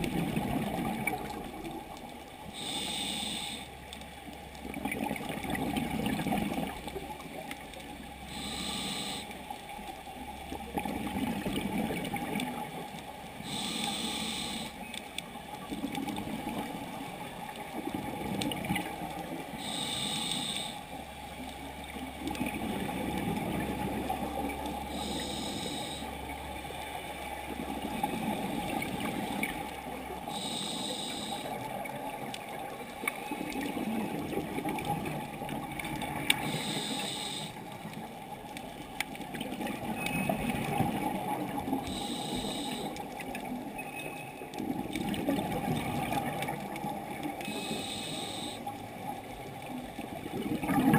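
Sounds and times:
bubbling: 0.0s - 2.6s, 4.4s - 8.2s, 10.2s - 13.7s, 21.5s - 25.1s, 31.6s - 42.2s, 44.4s - 47.8s, 48.8s - 50.9s
diver breathing through regulator: 2.5s - 3.8s, 8.3s - 9.4s, 13.4s - 14.8s, 19.6s - 20.9s, 24.9s - 26.2s, 30.3s - 31.6s, 36.4s - 37.7s, 41.8s - 43.1s, 47.5s - 48.7s.

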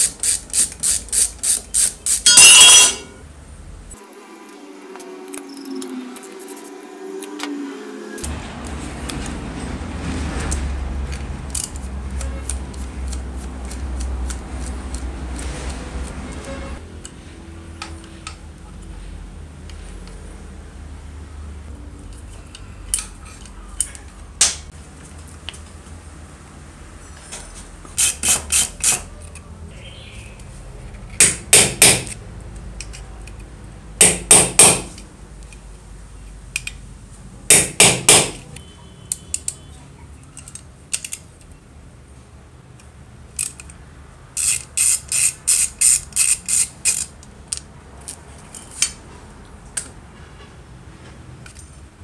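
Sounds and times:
hammer striking impact driver: 31.2s - 32.2s, 34.0s - 35.0s, 37.5s - 38.4s.

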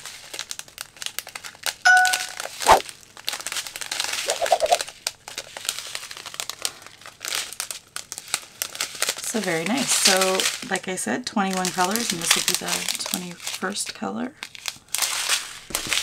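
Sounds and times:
plastic bags crinkling: 0.0s - 16.0s
brief ding: 1.9s - 2.4s.

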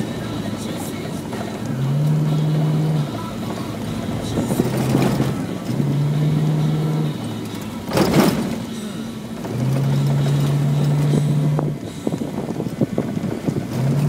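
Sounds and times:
car engine droning: 0.0s - 14.0s
loud rattling: 7.1s - 11.3s.

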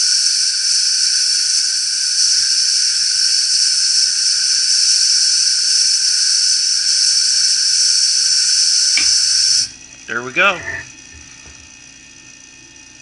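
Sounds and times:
compressed air hissing: 0.0s - 12.0s.

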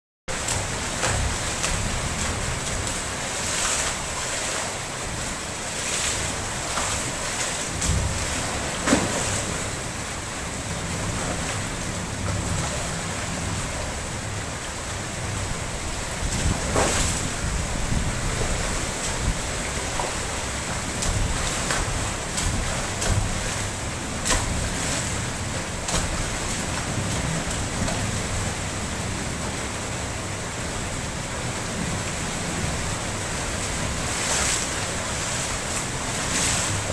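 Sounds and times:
splashes in water: 0.3s - 10.0s
rain hiss on water: 0.3s - 36.9s
wind on microphone: 16.0s - 19.7s.

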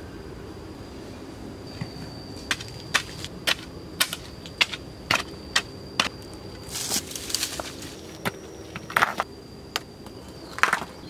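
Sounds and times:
stones knocking together: 6.8s - 9.3s.

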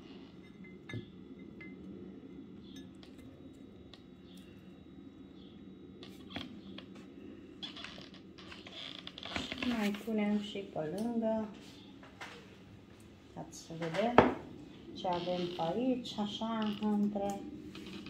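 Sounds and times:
low background hum: 0.0s - 18.0s
dishes clicking and tapping: 0.4s - 1.8s.

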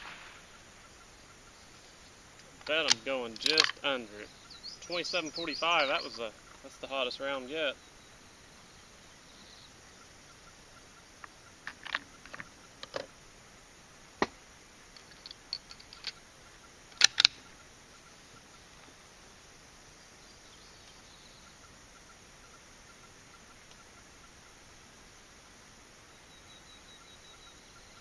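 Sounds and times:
rifle bolt clicks and clacks: 2.6s - 3.8s, 17.0s - 17.4s.

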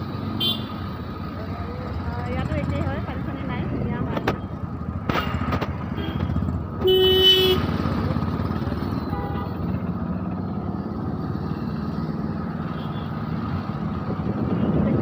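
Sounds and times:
road traffic rumble: 0.0s - 15.0s
vehicle horn honking: 0.4s - 0.8s, 5.9s - 7.7s, 9.1s - 9.7s.

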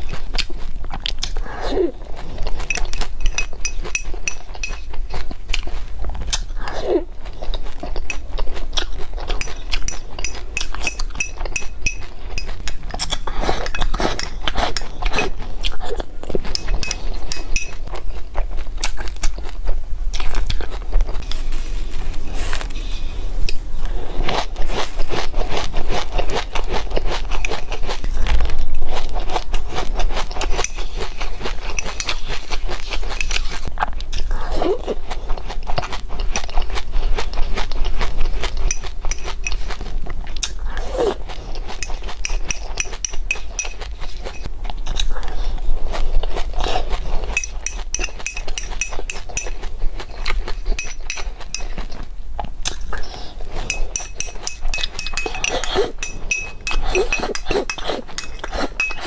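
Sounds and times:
crunching and chewing: 0.0s - 59.0s
spoon scraping a glass bowl: 2.5s - 5.2s, 9.2s - 15.4s, 16.4s - 18.0s, 24.2s - 33.7s, 38.5s - 39.8s, 41.1s - 45.1s, 47.2s - 52.0s, 52.8s - 59.0s.

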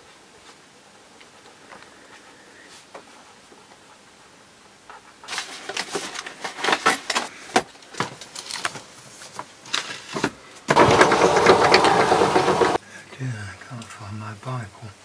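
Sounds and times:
papers rustling: 5.3s - 12.8s
binders knocking: 10.7s - 12.8s.

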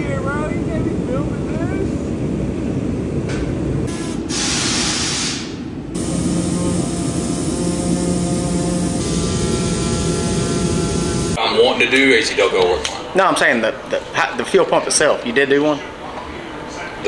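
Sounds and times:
steady low hum: 0.0s - 4.2s, 5.6s - 11.4s
workshop noise: 0.0s - 11.4s.

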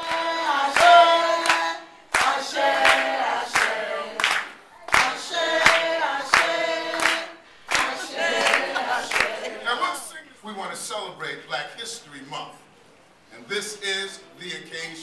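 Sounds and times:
hand clapping: 0.0s - 9.6s
group chanting: 0.0s - 10.1s.

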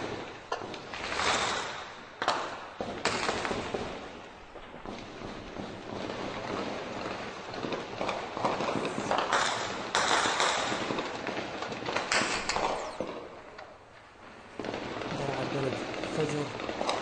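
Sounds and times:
heavy gunfire: 5.0s - 13.5s, 14.6s - 17.0s.

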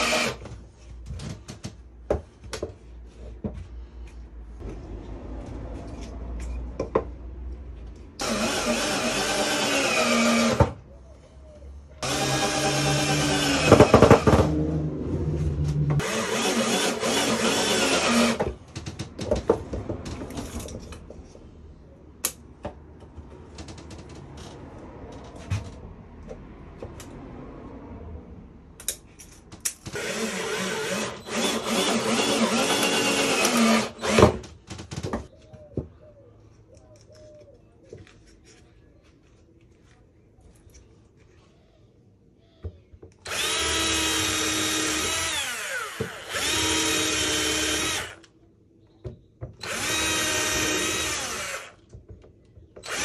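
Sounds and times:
cordless drill driving screws: 0.0s - 0.4s, 8.2s - 10.7s, 12.0s - 14.3s, 16.0s - 18.4s, 29.9s - 34.4s, 43.2s - 48.3s, 49.6s - 51.9s, 52.8s - 53.0s.

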